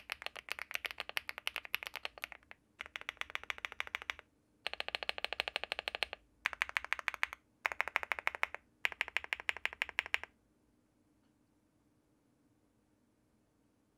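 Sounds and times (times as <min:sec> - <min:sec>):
mechanical keyboard typing: 0:00.0 - 0:10.3.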